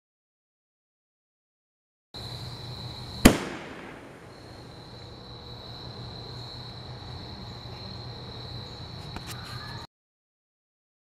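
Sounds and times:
crickets trilling: 2.2 - 9.9.

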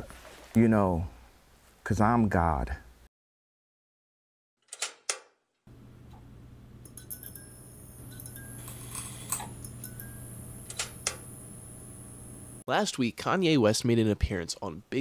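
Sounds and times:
neon sign electrical hum: 5.7 - 12.6
neon sign flickering crackles: 7.6 - 12.6.

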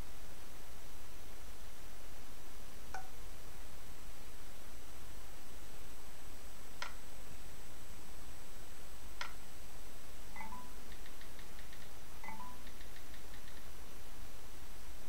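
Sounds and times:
room noise hum and hiss: 0.0 - 15.0
faint rapid ticking: 10.4 - 13.7.

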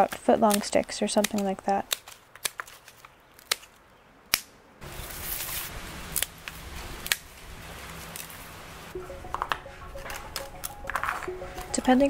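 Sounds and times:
pruning shears snipping sticks: 0.0 - 4.5, 6.1 - 7.4
steady hiss with low rumble: 4.8 - 9.2.

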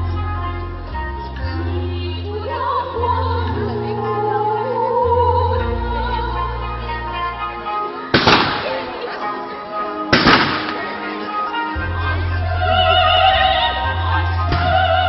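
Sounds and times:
music with long held notes: 0.0 - 15.0
firework shell bursts: 8.2 - 8.8, 10.2 - 10.8.

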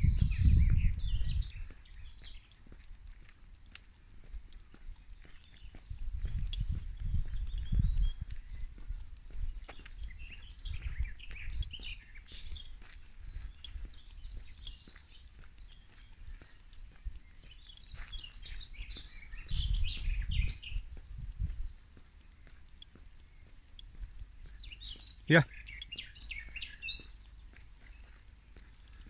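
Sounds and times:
low rumble: 0.0 - 1.5
songbirds chirping and singing: 0.0 - 29.0.

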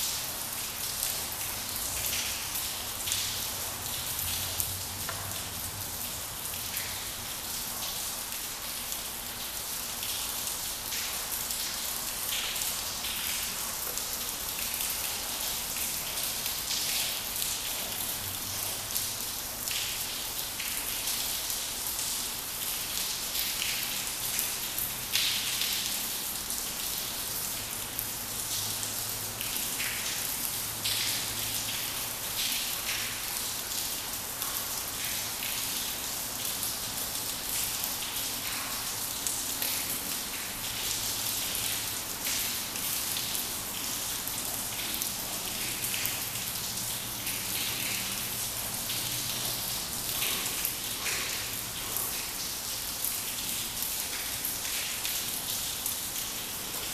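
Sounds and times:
rain pattering: 0.0 - 56.9.

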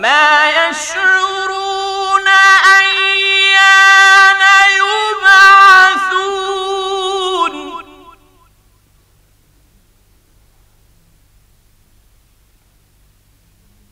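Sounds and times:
man chanting: 0.0 - 8.4.

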